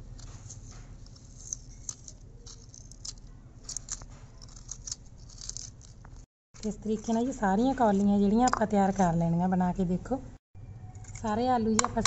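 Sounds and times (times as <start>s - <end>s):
spoon scraping potato: 0.0s - 9.4s.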